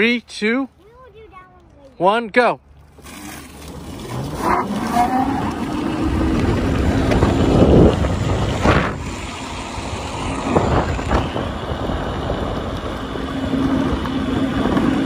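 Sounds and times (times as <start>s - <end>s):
tyres rumbling on asphalt: 2.8s - 15.0s
steady low hum: 5.5s - 15.0s.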